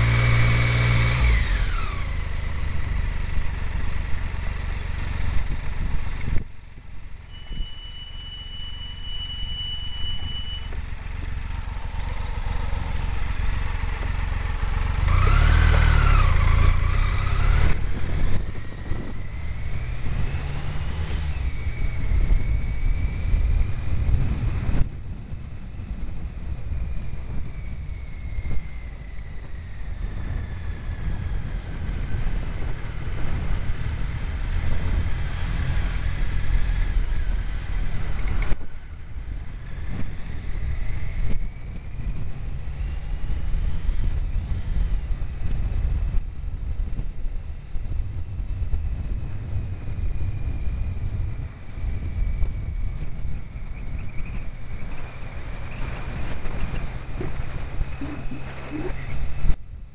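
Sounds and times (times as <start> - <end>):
wind buffeting microphone: 0.0 - 7.7, 10.2 - 59.9
faint whine sliding in pitch: 3.3 - 24.9, 38.0 - 59.9.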